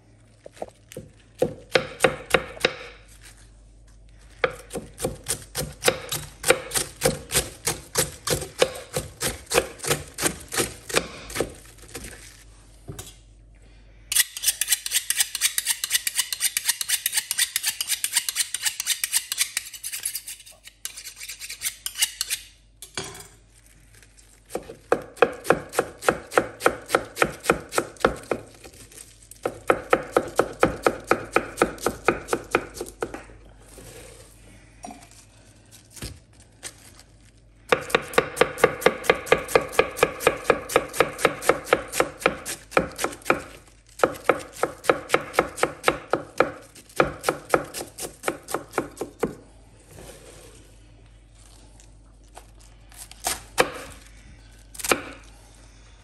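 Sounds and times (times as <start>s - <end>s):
knife chopping cabbage on board: 0.9s - 3.1s, 4.4s - 12.2s, 24.5s - 28.8s, 29.4s - 33.3s, 37.7s - 49.4s, 53.1s - 54.0s.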